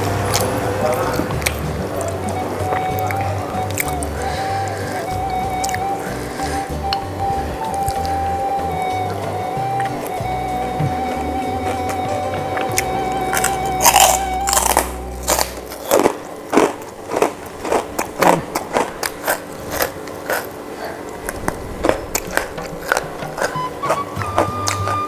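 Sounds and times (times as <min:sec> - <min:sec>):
background music: 0:00.0 - 0:25.0
person eating with mouth sounds: 0:12.6 - 0:25.0.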